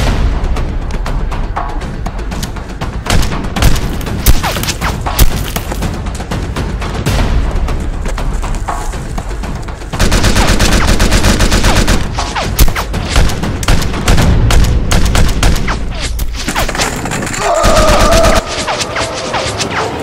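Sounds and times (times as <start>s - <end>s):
rapid gunfire: 10.0s - 15.8s.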